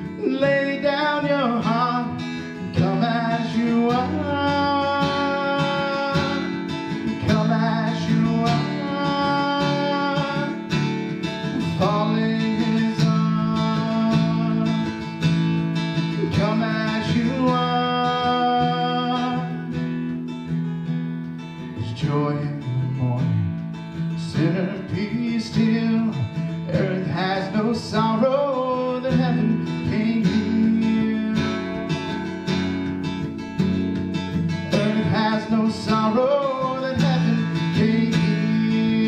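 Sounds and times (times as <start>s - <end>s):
man singing: 0.0s - 20.1s, 21.6s - 32.8s, 34.5s - 39.0s
strummed acoustic guitar: 0.0s - 39.0s
electric bass: 29.2s - 36.3s.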